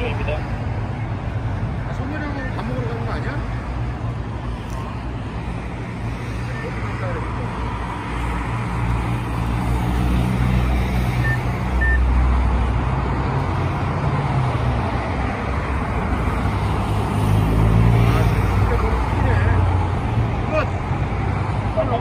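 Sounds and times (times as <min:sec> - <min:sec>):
vehicles driving past: 0:00.0 - 0:22.0
short high beeps: 0:11.2 - 0:12.1.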